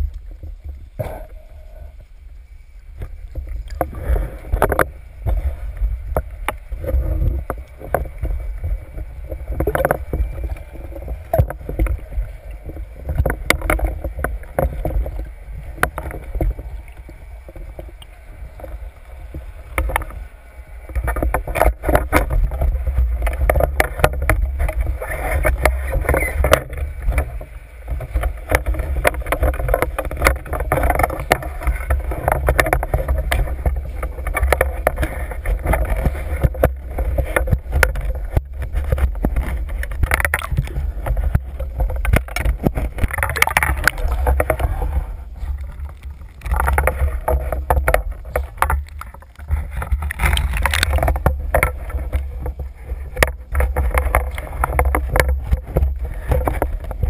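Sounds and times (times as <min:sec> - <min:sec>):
water rushing and sloshing: 0:00.0 - 0:57.0
sharp knocks and clicks: 0:28.0 - 0:44.7, 0:45.9 - 0:52.6.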